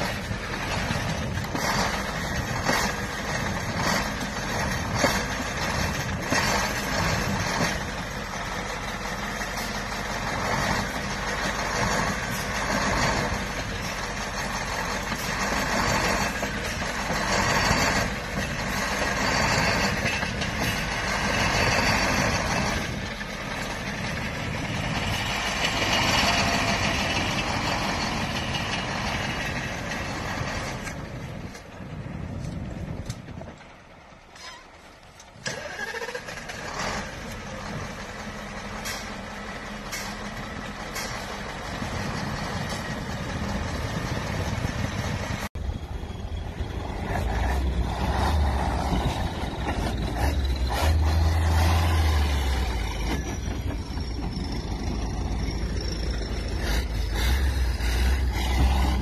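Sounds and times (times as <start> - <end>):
diesel truck engine running hard: 0.0 - 59.0.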